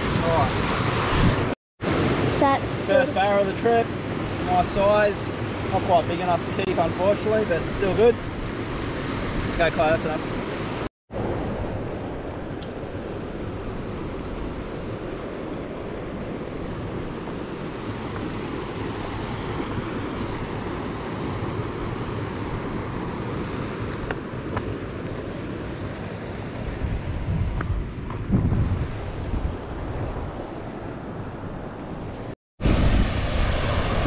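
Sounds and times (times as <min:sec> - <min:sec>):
wind buffeting microphone: 0:11.2 - 0:34.0.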